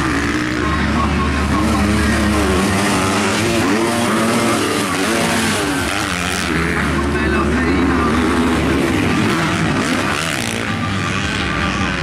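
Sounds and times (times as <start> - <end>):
dirt bike engines revving: 0.0 - 12.0.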